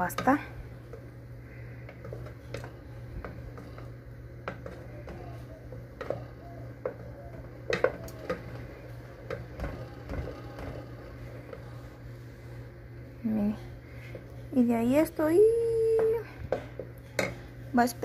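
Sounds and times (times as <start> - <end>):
wooden spoon scraping a pot: 0.0 - 12.7
steady low hum: 0.0 - 18.0.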